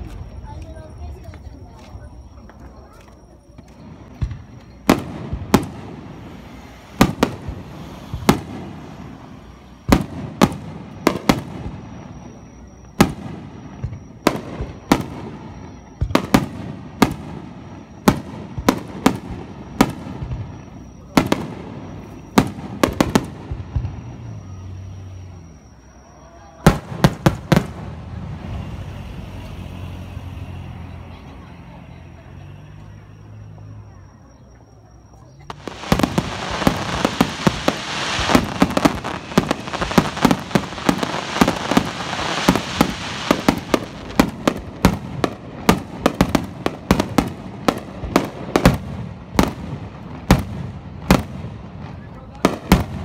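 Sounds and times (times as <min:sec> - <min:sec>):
firework shells bursting: 0:35.5 - 0:51.4.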